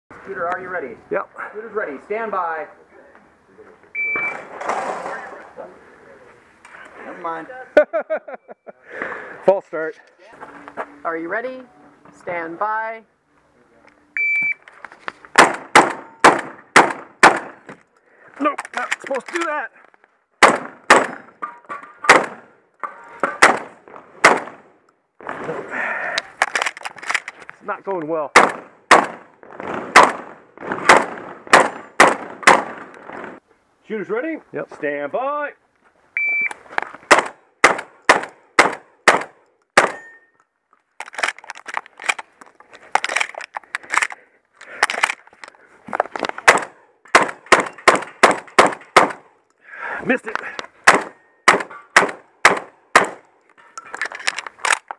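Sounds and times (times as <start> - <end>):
shot timer beep: 4.0 - 4.4, 36.2 - 36.5
shotgun shots: 15.4 - 17.6, 20.4 - 21.3, 22.0 - 22.5, 23.2 - 24.7, 28.3 - 33.4, 37.1 - 40.0, 46.4 - 49.2, 50.8 - 53.2
shells loaded into gun clatter: 17.8 - 20.1, 26.2 - 27.6, 40.0 - 46.5, 53.4 - 54.9.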